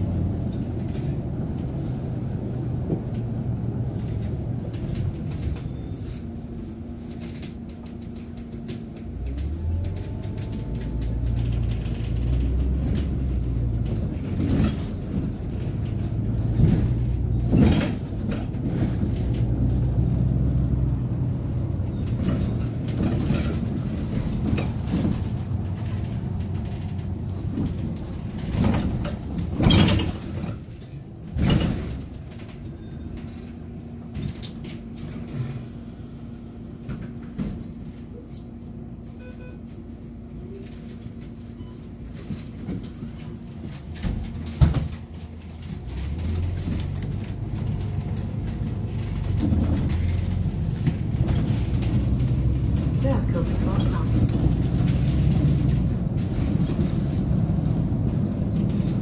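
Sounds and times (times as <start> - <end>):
bus body knocks and rattles: 0.0 - 6.0, 6.6 - 36.0, 36.6 - 59.0
bus engine droning: 0.0 - 59.0.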